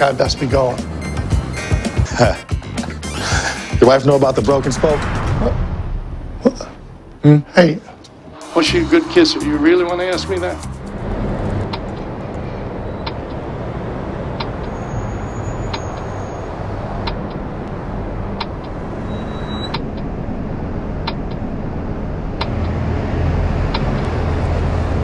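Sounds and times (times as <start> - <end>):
steady low rumble: 4.1 - 12.4, 19.8 - 22.4.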